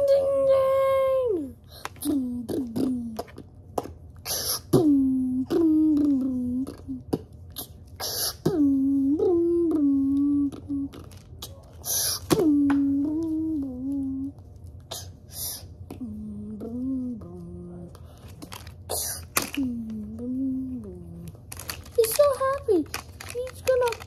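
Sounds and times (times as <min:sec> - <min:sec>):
child singing wordless tune: 0:00.0 - 0:03.2, 0:04.7 - 0:07.1, 0:08.4 - 0:11.0, 0:12.3 - 0:14.3, 0:16.0 - 0:18.0, 0:19.5 - 0:21.3
child beatboxing hiss: 0:00.0 - 0:03.4, 0:04.2 - 0:18.0, 0:18.9 - 0:21.2.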